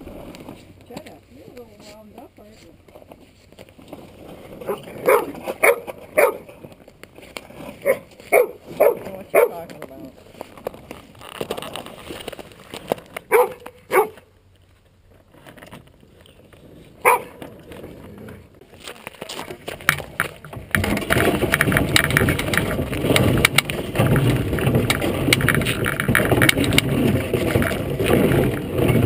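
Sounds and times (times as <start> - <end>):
iceboat runners scraping over ice: 0.0 - 29.0
dog barking: 4.7 - 6.5, 7.8 - 9.6, 13.3 - 14.2, 17.0 - 17.4.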